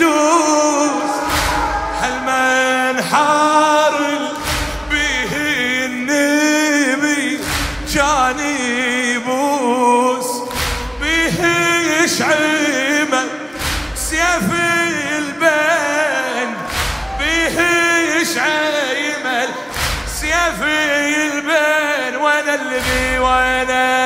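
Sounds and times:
man chanting a lament: 0.0 - 24.0.

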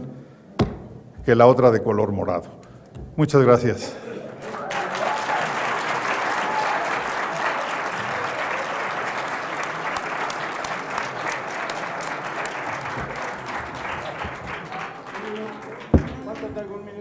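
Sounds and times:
audience applause: 4.2 - 16.8.

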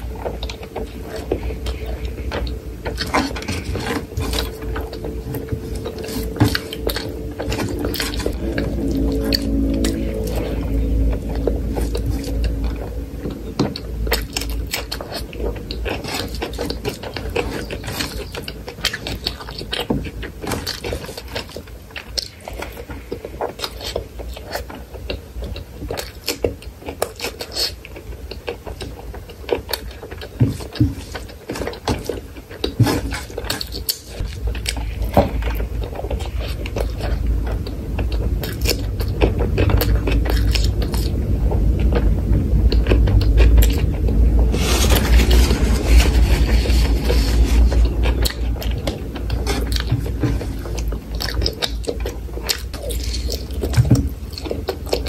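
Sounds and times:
low rumble: 0.0 - 19.0, 34.1 - 55.0
chewing food: 0.0 - 55.0.

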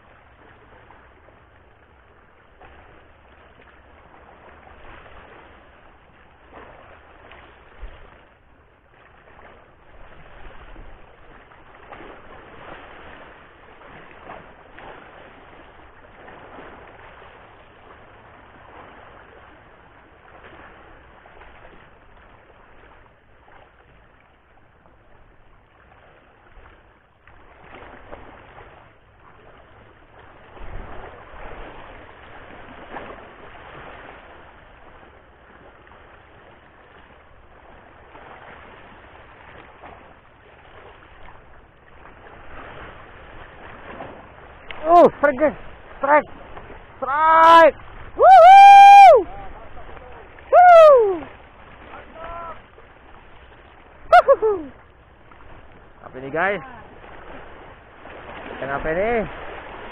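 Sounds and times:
sea waves washing against rocks: 9.0 - 23.7, 27.6 - 59.9.

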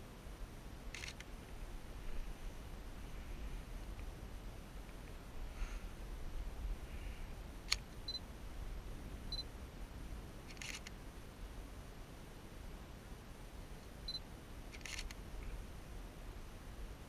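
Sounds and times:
faint low rumble: 0.0 - 17.0
camera click: 0.9 - 1.3, 7.7 - 7.9, 10.5 - 11.0, 14.7 - 15.2
camera shutter clicks: 0.9 - 1.3, 7.7 - 7.9, 10.5 - 11.0, 14.7 - 15.2.

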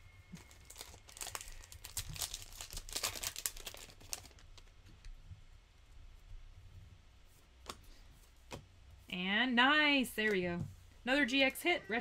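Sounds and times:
foil pack crinkling and tearing: 0.3 - 4.7.

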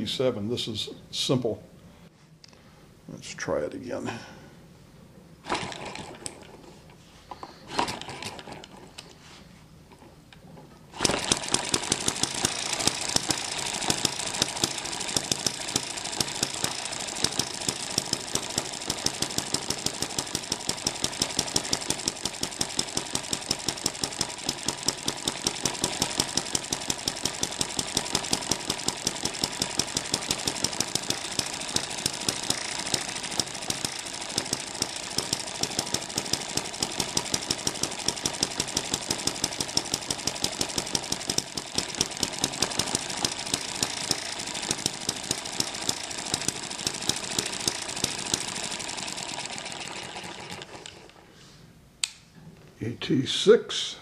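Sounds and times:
model gas engine running: 5.4 - 6.4, 7.7 - 8.8, 11.0 - 51.2.

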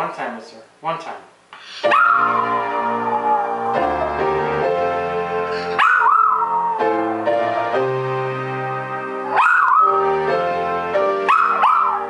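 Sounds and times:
electronic keyboard piano chords: 1.8 - 12.0
dog howling: 1.9 - 7.3, 9.3 - 10.1, 11.3 - 12.0.

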